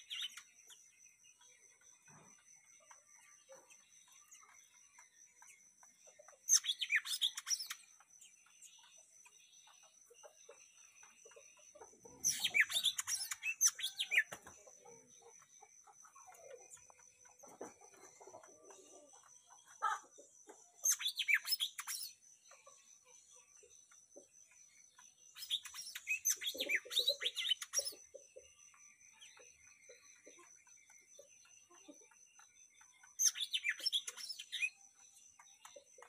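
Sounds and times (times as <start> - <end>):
songbird chirping and whistling: 6.0 - 8.0, 12.0 - 14.6, 20.8 - 22.2, 25.3 - 30.0, 32.9 - 35.1.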